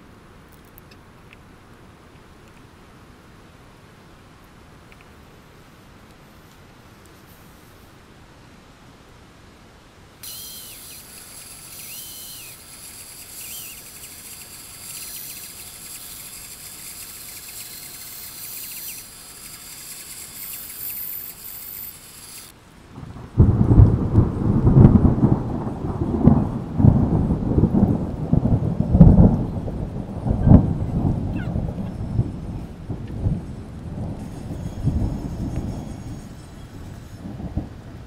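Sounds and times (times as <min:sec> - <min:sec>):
faint high whir: 0:10.2 - 0:22.6, 0:34.2 - 0:37.7
low storm rumble: 0:21.3 - 0:38.0.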